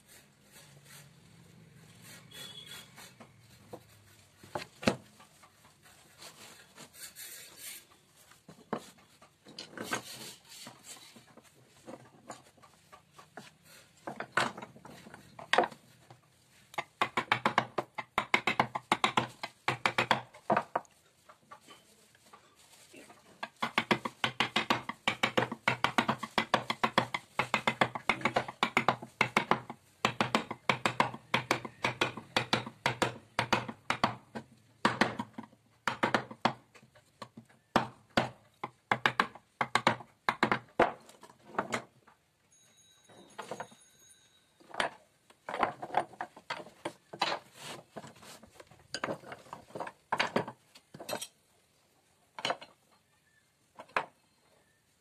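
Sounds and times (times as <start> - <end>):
wooden mallet striking chisel: 16.7 - 20.8, 23.4 - 41.9.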